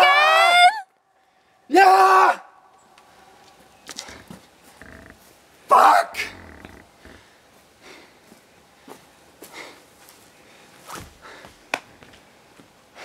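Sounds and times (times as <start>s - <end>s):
heavy breathing: 4.0s - 5.3s, 6.2s - 11.7s.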